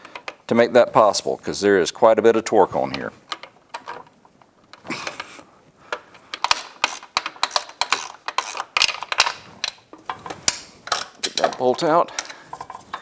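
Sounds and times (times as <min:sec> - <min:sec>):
socket ratchet clicking: 0:06.4 - 0:09.8.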